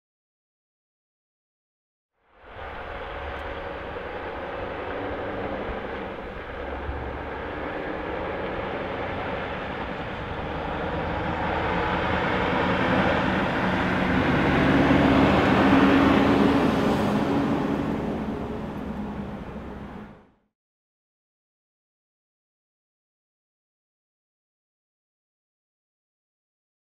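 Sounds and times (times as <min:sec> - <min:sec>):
truck diesel engine pulling away: 0:02.4 - 0:20.4.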